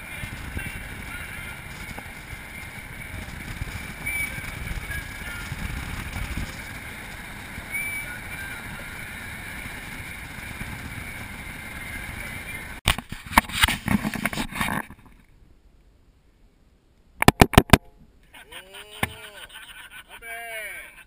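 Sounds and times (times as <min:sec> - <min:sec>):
low vehicle rumble: 0:00.0 - 0:12.8
wind rushing on microphone: 0:00.0 - 0:15.0.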